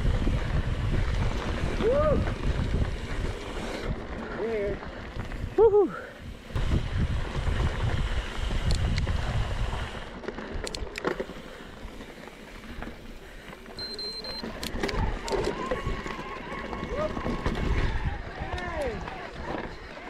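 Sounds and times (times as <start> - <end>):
wind buffeting microphone: 0.0 - 10.9, 14.9 - 19.8
bike tyres rolling on dirt: 0.0 - 20.0
bike clicks and knocks: 7.4 - 20.0.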